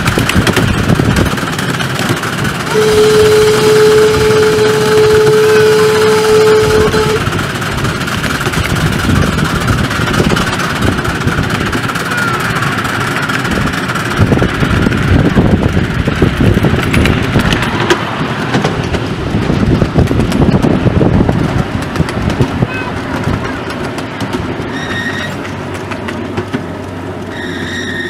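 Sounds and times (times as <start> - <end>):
train rumbling: 0.0 - 28.0
wheels clicking on track: 0.0 - 28.0
steam whistle: 2.6 - 7.4, 24.7 - 25.4, 27.3 - 28.0.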